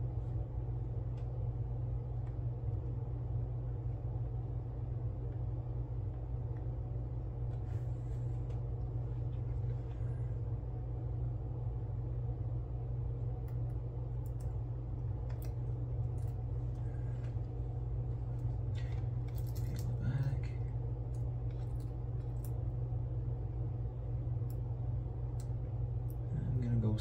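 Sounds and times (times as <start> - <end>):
steady low hum: 0.0 - 27.0
faint clicks of small parts: 13.4 - 14.6, 15.2 - 17.5, 18.3 - 22.6.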